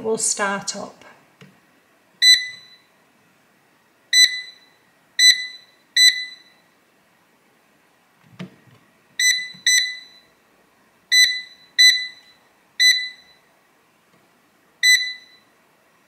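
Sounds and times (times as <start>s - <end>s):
short high beeps: 2.2s - 2.9s, 4.2s - 6.6s, 9.2s - 10.3s, 11.1s - 13.4s, 14.8s - 15.5s.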